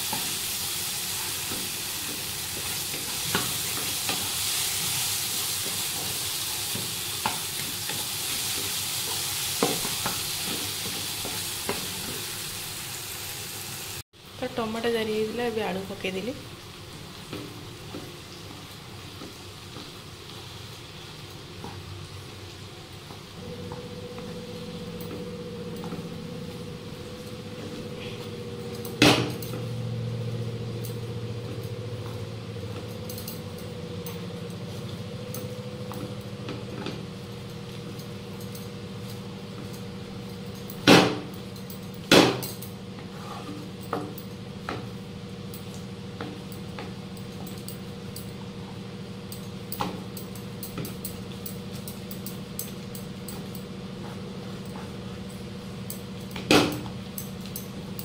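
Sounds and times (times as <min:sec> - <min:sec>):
low hum: 0:23.4 - 0:37.0
wooden spatula scraping a pan: 0:43.0 - 0:43.7.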